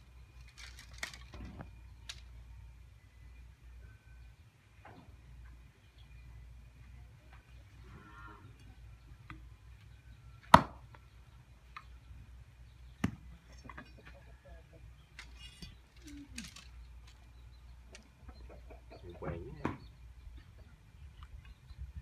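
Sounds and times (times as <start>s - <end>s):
machete chopping bamboo: 10.5s - 10.8s.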